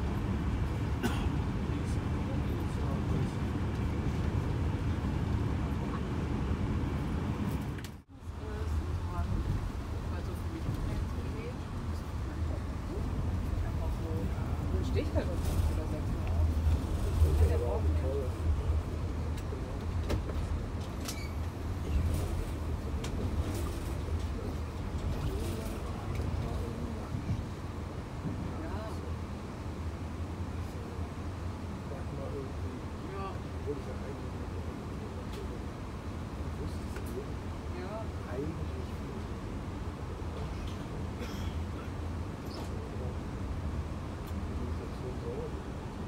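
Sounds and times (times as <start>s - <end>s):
train wheels rumbling on track: 0.0s - 31.9s.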